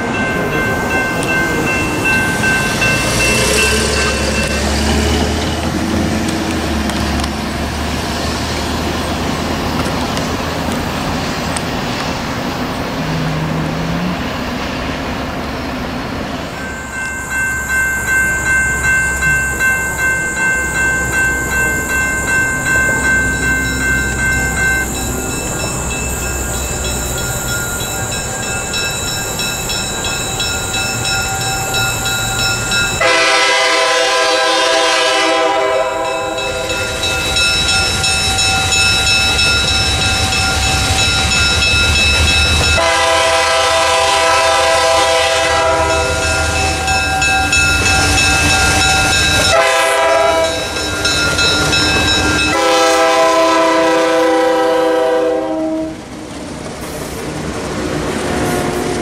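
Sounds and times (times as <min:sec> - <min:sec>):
passenger cars rolling past: 0:00.0 - 0:59.0
locomotive air horn blasts: 0:33.0 - 0:36.9, 0:42.7 - 0:46.5, 0:49.4 - 0:50.6, 0:52.5 - 0:56.0.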